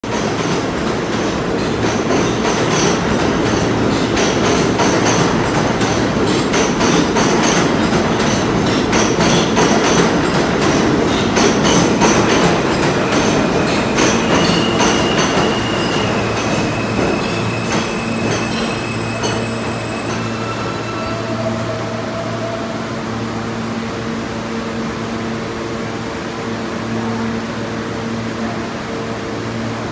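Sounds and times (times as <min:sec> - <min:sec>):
subway train rumbling: 0:00.0 - 0:29.9
high brake squeal: 0:12.8 - 0:23.3.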